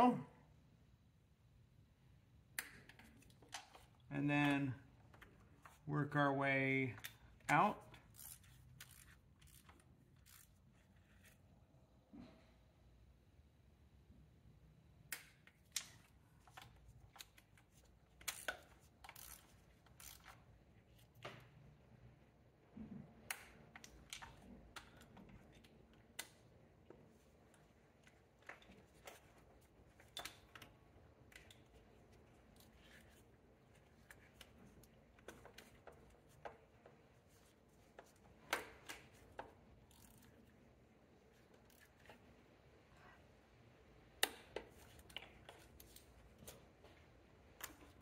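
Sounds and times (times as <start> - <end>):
wrench clicking: 7.0 - 10.6, 18.2 - 20.4, 38.5 - 40.3.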